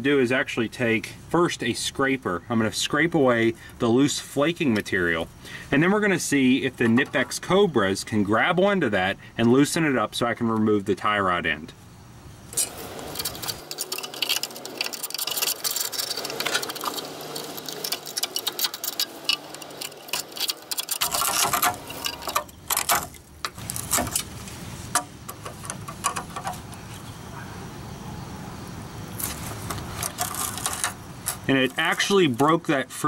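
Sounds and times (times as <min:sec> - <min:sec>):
steel scraper scratching rusty nut: 0:12.5 - 0:24.3, 0:29.2 - 0:32.3
rust flakes breaking away: 0:12.5 - 0:26.3, 0:29.2 - 0:32.1.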